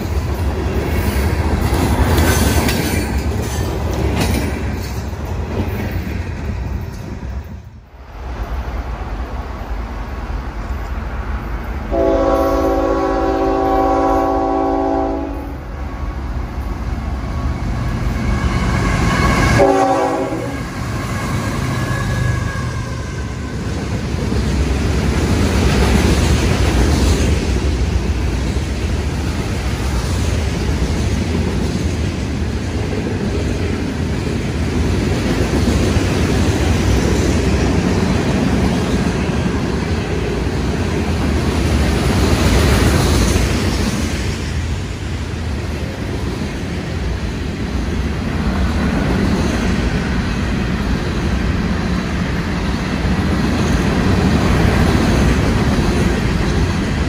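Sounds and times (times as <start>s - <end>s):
freight cars rumbling and clattering: 0.0s - 7.7s
train air horn blasts: 11.9s - 15.6s, 19.2s - 22.9s.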